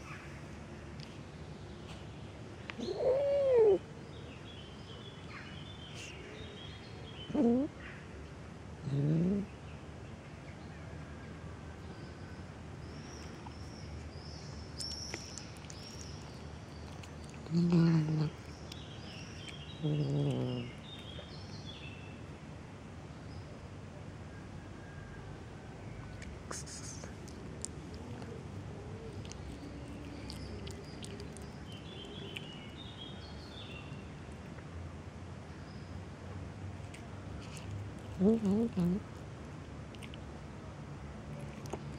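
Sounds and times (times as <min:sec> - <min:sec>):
outdoor background noise: 0:00.0 - 0:41.9
small birds chirping: 0:01.0 - 0:08.0, 0:11.9 - 0:22.3, 0:25.9 - 0:34.7, 0:36.8 - 0:39.3
kitten chewing wet food: 0:13.1 - 0:21.3, 0:27.1 - 0:33.1, 0:36.8 - 0:40.3, 0:41.4 - 0:41.9.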